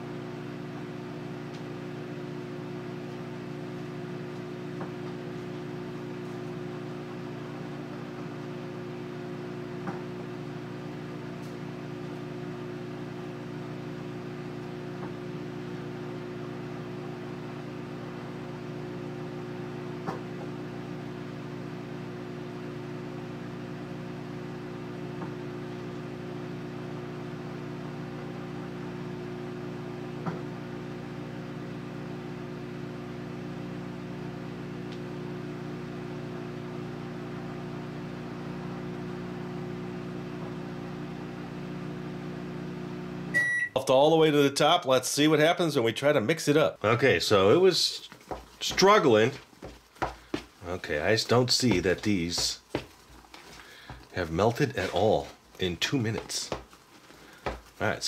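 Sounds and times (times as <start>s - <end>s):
microwave oven humming: 0.0s - 44.6s.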